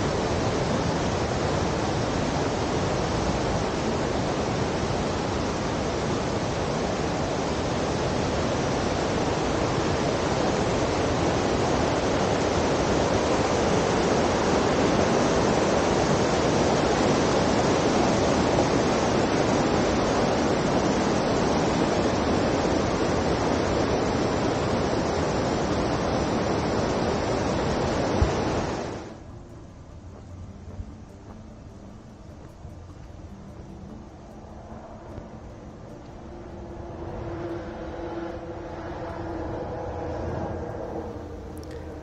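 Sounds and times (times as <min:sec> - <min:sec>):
rushing running water: 0:00.0 - 0:29.2.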